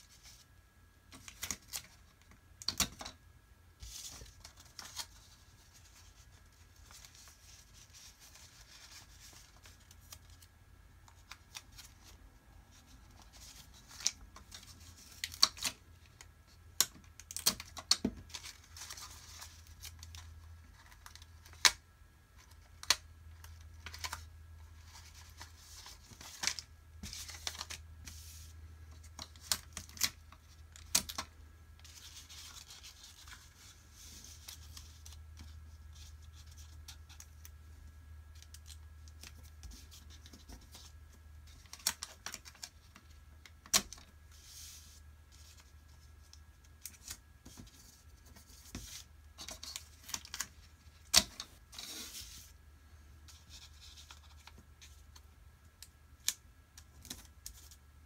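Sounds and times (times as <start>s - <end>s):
faint low hum: 0.0s - 58.0s
paper folding and creasing: 3.8s - 10.5s, 16.8s - 21.8s, 22.4s - 37.6s, 38.4s - 52.6s, 53.3s - 55.3s.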